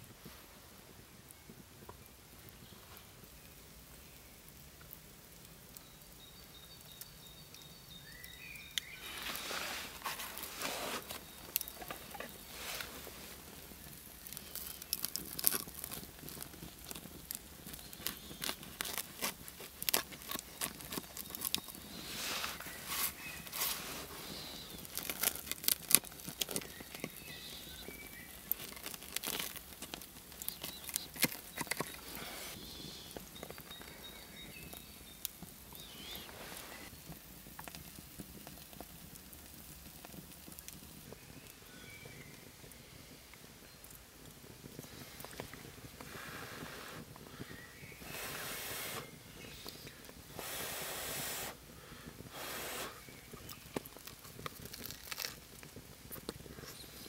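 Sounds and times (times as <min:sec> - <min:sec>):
bread crust crunching: 0:08.8 - 0:41.1, 0:53.0 - 0:57.0.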